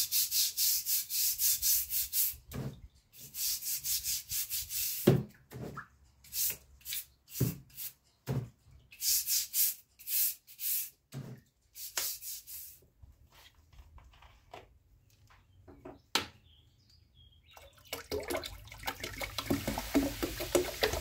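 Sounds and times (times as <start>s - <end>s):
scrub brush scrubbing metal: 3.2s - 5.1s.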